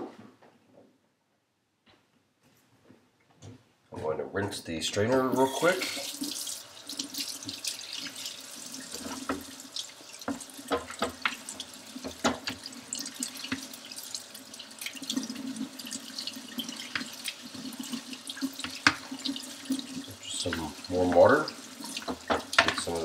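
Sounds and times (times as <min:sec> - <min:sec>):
faucet running into sink: 0:05.1 - 0:23.0.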